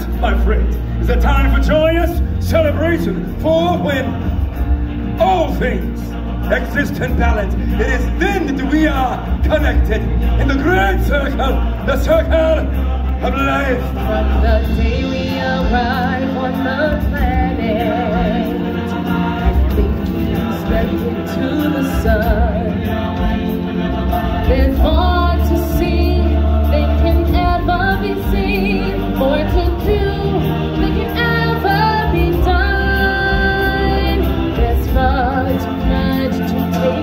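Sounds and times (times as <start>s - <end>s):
band accompaniment: 0.0s - 37.0s
voices singing together: 0.0s - 37.0s.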